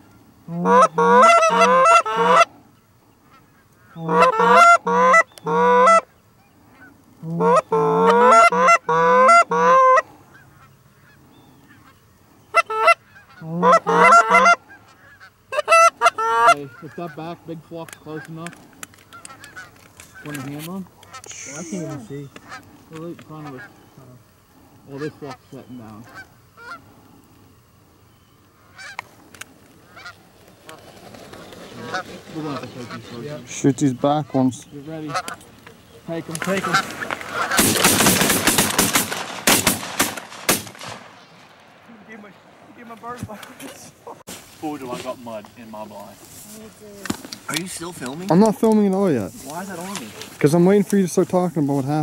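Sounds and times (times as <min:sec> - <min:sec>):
goose calls honking: 0:00.4 - 0:02.6, 0:03.2 - 0:27.0, 0:28.6 - 0:40.6
sharp clicks: 0:17.8 - 0:21.4.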